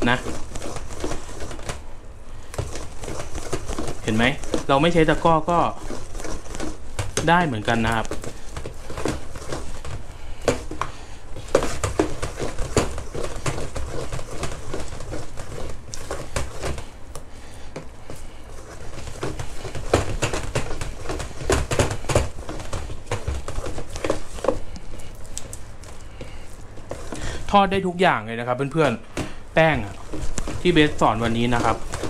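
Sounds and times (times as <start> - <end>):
spoon stirring thick batter: 0.0 - 1.8, 2.4 - 32.0.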